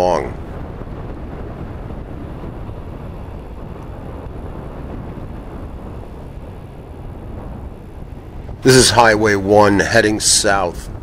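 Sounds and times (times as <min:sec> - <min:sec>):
tyre and road noise: 0:00.0 - 0:11.0
wind rumble on microphone: 0:00.0 - 0:11.0.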